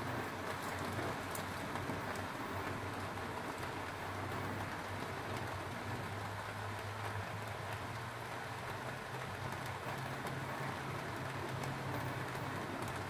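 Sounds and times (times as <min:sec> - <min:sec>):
faint crackles: 0:00.1 - 0:08.0.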